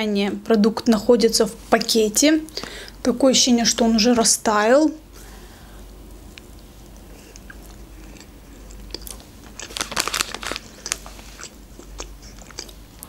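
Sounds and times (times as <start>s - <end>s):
crackly crunchy chewing: 6.3s - 13.0s
wet chewing: 6.4s - 13.0s.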